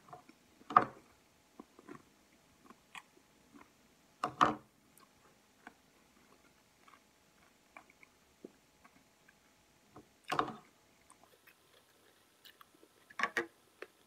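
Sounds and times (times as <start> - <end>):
chewing with wet mouth clicks: 10.3 - 13.2.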